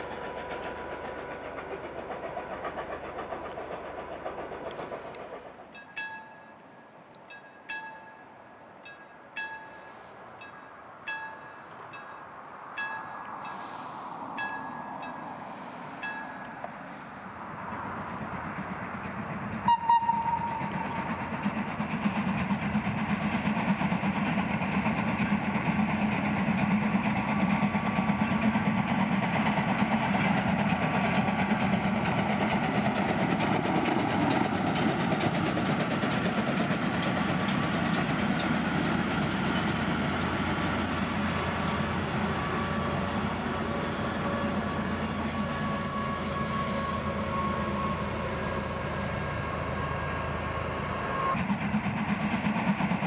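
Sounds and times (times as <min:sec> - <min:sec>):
steam locomotive running: 0:00.0 - 0:53.0
steam locomotive whistle: 0:19.6 - 0:20.8, 0:41.8 - 0:51.4.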